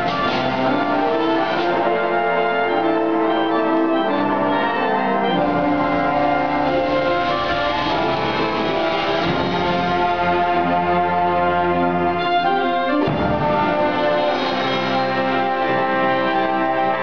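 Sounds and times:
clarinet solo: 0.0 - 17.0
wind ensemble holding chords: 0.0 - 17.0.

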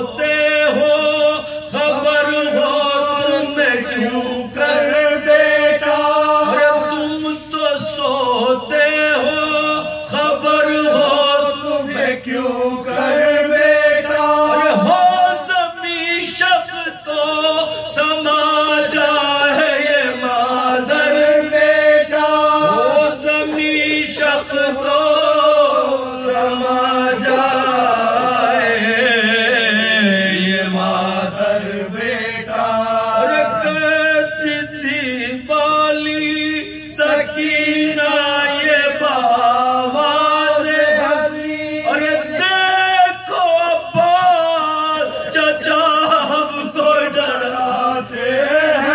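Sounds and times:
men chanting an elegy: 0.0 - 35.2.

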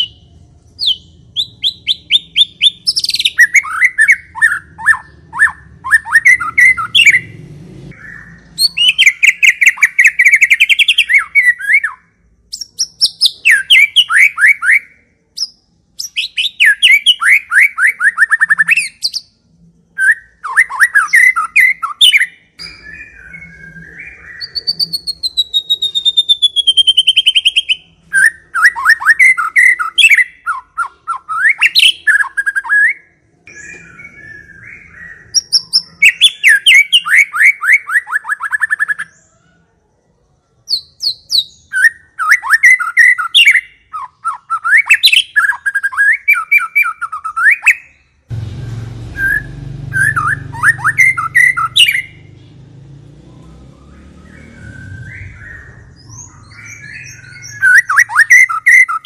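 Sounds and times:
songbird singing trills: 0.0 - 39.6, 40.6 - 48.3, 49.1 - 59.0
long descending bird whistle: 20.0 - 39.2, 49.2 - 52.3, 53.3 - 59.0.

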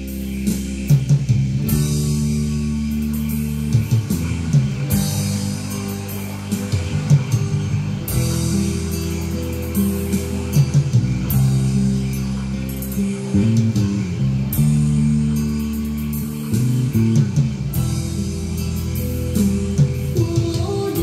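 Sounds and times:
plucked guitar: 0.0 - 21.0
steady bass line: 0.0 - 21.0.

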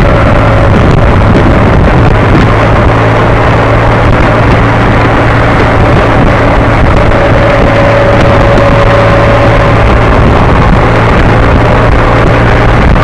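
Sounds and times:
motorcycle engine running: 0.0 - 13.0
wind on microphone: 0.0 - 13.0.

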